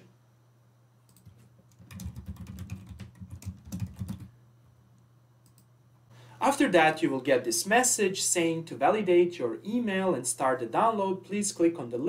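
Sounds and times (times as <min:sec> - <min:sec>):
typing on computer keyboard: 0:01.1 - 0:04.3.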